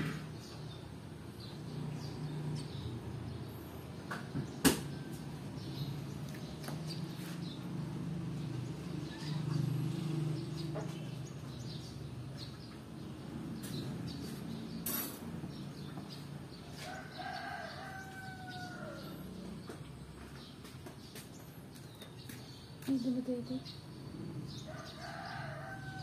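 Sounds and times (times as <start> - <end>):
rooster crowing: 16.8 - 19.3, 24.7 - 26.0.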